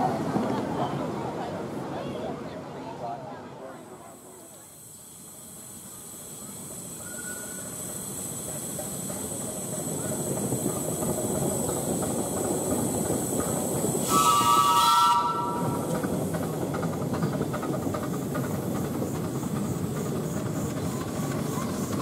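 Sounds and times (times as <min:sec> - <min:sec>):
rush of steam: 0:03.5 - 0:22.0
steam locomotive whistle blast: 0:14.0 - 0:15.9.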